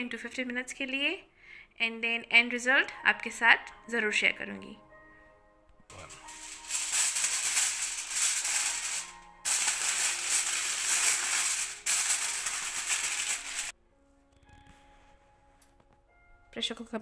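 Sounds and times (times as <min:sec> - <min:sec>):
aluminium foil crinkling: 0:06.1 - 0:13.7.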